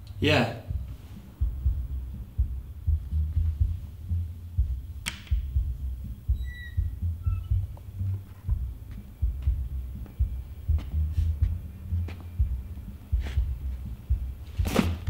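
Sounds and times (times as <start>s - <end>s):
muffled pulsing thumps: 0.0s - 15.0s
sharp click: 5.0s - 5.4s
high chirping tones: 5.5s - 14.2s.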